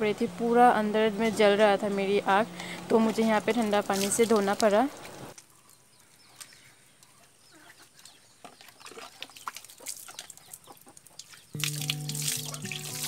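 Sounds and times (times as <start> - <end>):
chickens clucking: 7.0 - 11.5.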